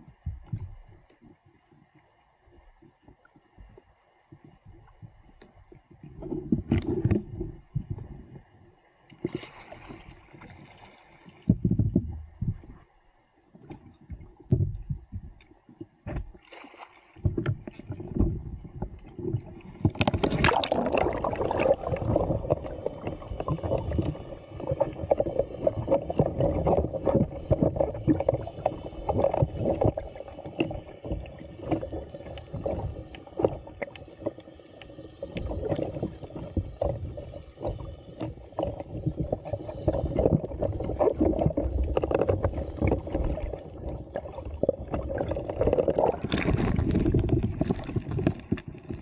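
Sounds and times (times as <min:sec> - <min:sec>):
muffled underwater sloshing: 0:00.0 - 0:49.0
bubbling: 0:17.3 - 0:49.0
water splashing and pouring: 0:19.7 - 0:34.4, 0:35.0 - 0:49.0.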